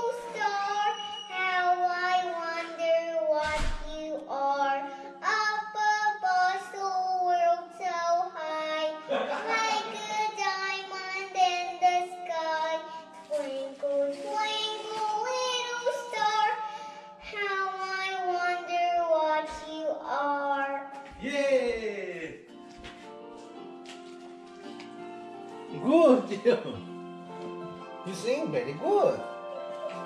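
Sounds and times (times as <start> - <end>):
girl singing karaoke: 0.0 - 21.2
backing track music: 0.0 - 30.0.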